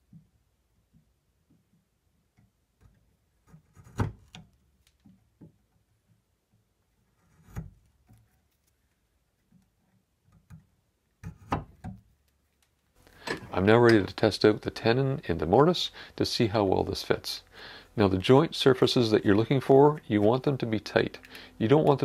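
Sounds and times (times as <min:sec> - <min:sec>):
chisel paring wood: 0:10.3 - 0:12.0.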